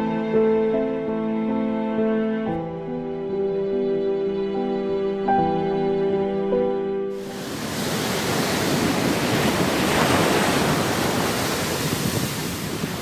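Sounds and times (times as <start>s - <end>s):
waves breaking on beach: 7.2s - 13.0s.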